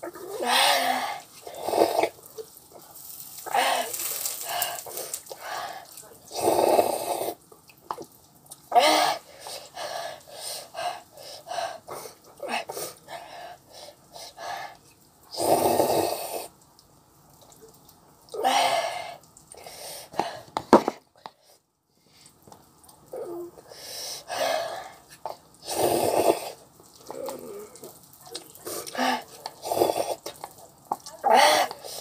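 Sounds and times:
person slurping noodles: 0.2 - 2.2, 6.3 - 7.4, 15.3 - 16.5, 25.6 - 27.7, 28.8 - 30.4
chewing sounds: 1.3 - 8.8, 25.0 - 32.0.

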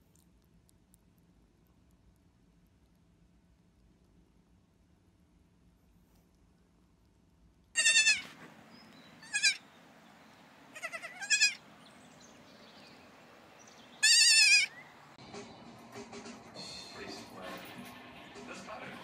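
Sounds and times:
goat kids bleating: 7.8 - 8.4, 9.2 - 9.6, 10.7 - 11.6, 14.0 - 14.8.

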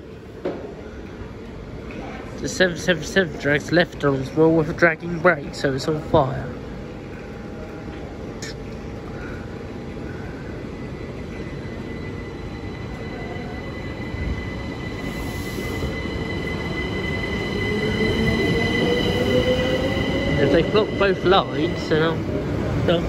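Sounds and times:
electric train passing: 0.0 - 23.0.

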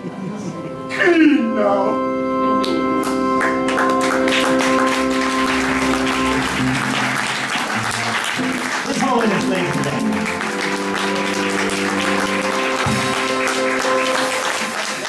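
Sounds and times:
held keyboard chord: 0.0 - 15.0
audience applause: 3.0 - 15.0.

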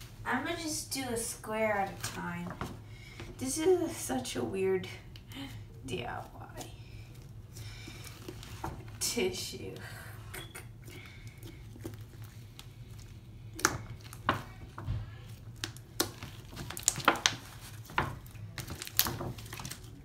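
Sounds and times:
low steady hum: 0.0 - 20.0
slime squishing by hand: 5.2 - 20.0.

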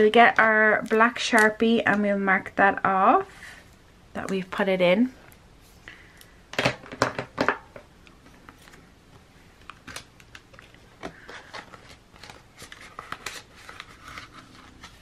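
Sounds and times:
paper pages turning: 9.6 - 15.0.

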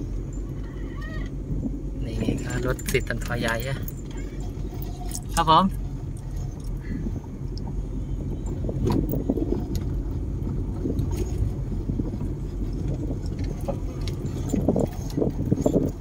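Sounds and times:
engine and tyres rumbling: 0.0 - 16.0.

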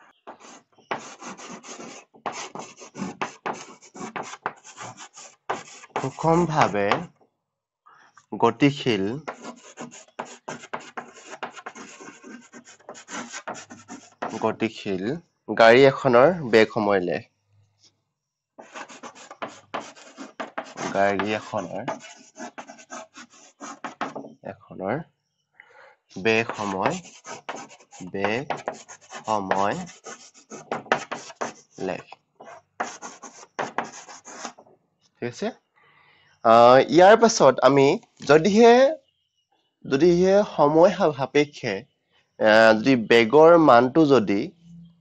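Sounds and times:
chalk scratching on blackboard: 0.3 - 7.1, 9.2 - 14.6, 18.6 - 24.3, 26.3 - 34.6.

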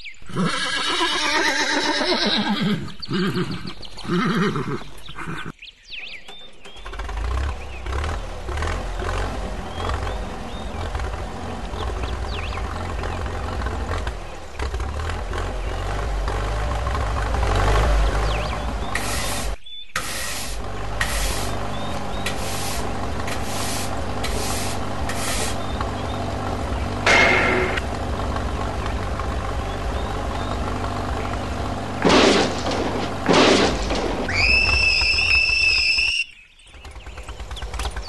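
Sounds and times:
engine running: 6.0 - 38.0
short scraping strokes: 18.9 - 21.6, 22.2 - 25.7
high squeal: 34.3 - 36.4.

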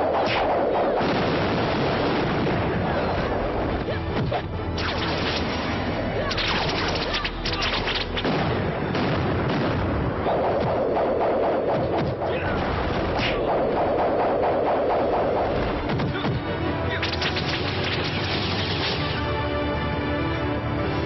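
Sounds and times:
quick hits and whooshes: 0.0 - 1.4, 6.3 - 8.5, 9.7 - 19.2
background music: 0.0 - 21.0.

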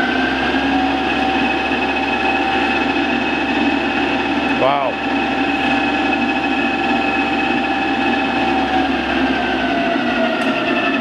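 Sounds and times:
lathe machine whine: 0.0 - 11.0.

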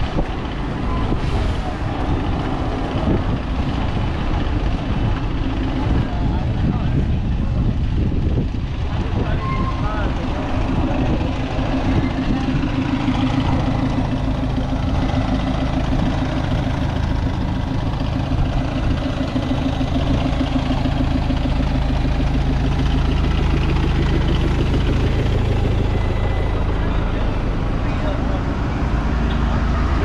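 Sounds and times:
bus engines idling: 0.0 - 30.0
street noise: 0.0 - 30.0.

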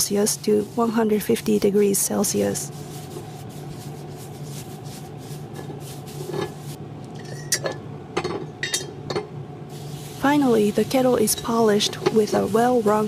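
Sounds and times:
steady low hum: 0.0 - 13.0
metal clinks on cast-iron kettle: 8.6 - 9.3.

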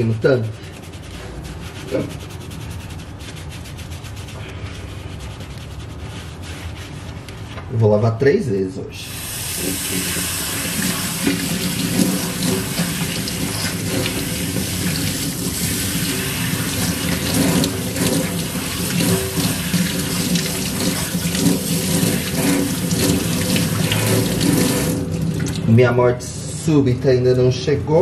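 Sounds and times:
hands rubbing scalp: 0.0 - 7.7, 10.6 - 15.1, 15.9 - 24.7
tap water splashing into sink: 10.6 - 15.4, 16.7 - 25.7.

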